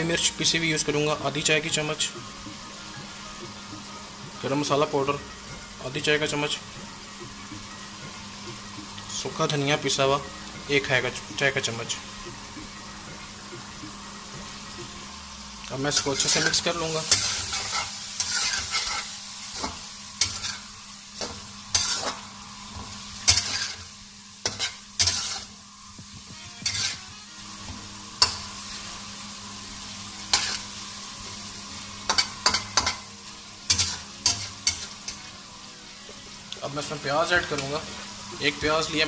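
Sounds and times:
chicken sizzling in oil: 0.0s - 39.0s
utensil scraping pan: 15.9s - 20.7s, 21.7s - 22.2s, 23.2s - 25.5s, 26.6s - 27.1s, 30.3s - 30.7s, 33.7s - 35.2s.

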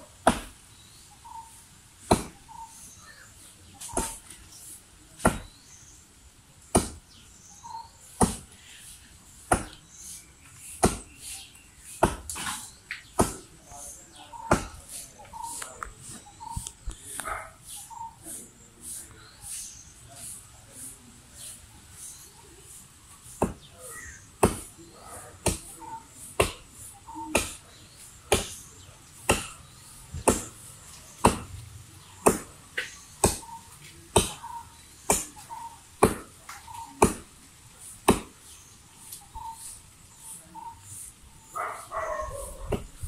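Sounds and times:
axe chopping into tree trunk: 0.2s - 0.6s, 2.0s - 2.4s, 3.9s - 4.2s, 5.2s - 5.5s, 6.7s - 7.0s, 8.2s - 8.4s, 9.5s - 9.8s, 10.8s - 11.1s, 12.0s - 13.5s, 24.4s - 24.7s, 28.3s - 28.6s, 29.3s - 29.6s, 30.2s - 30.5s, 31.2s - 31.5s, 32.2s - 33.5s, 34.1s - 34.4s, 36.0s - 36.4s, 37.0s - 37.3s, 38.0s - 38.4s.

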